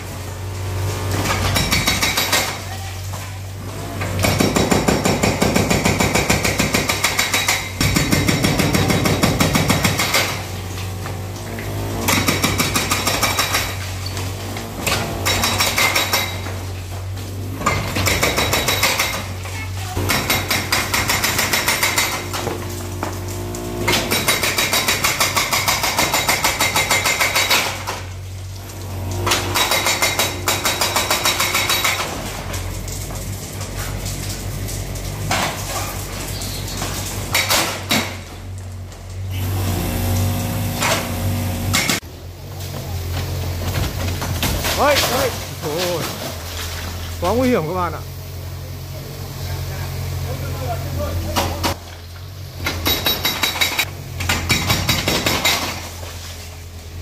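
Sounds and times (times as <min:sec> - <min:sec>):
hydraulic breaker hammering brick: 0:01.0 - 0:02.8, 0:03.7 - 0:28.1, 0:29.1 - 0:32.3, 0:37.2 - 0:38.5, 0:39.7 - 0:42.1, 0:52.6 - 0:56.0.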